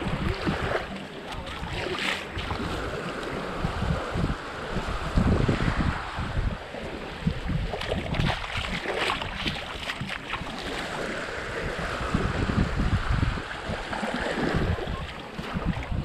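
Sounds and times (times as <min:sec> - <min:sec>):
small waves lapping on shore: 0:00.0 - 0:16.0
wind buffeting microphone: 0:00.0 - 0:16.0.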